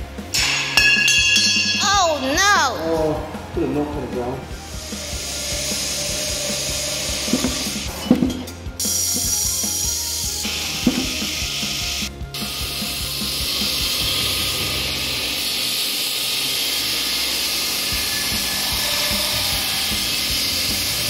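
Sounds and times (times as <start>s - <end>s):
metal-cutting bandsaw running: 2.9s - 21.0s
bench grinder grinding steel: 4.5s - 21.0s.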